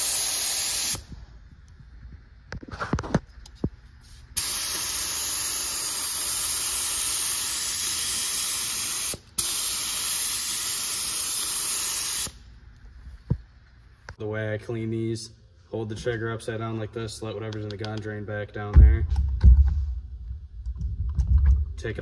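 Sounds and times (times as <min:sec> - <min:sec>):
paint gun air hiss: 0:00.0 - 0:01.1, 0:04.0 - 0:12.4.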